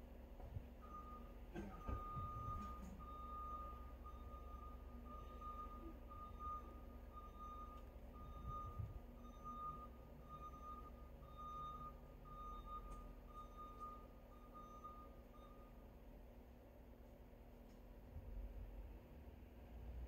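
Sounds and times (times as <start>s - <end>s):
low background rumble: 0.0s - 20.0s
faint repeated beeping: 0.8s - 16.0s.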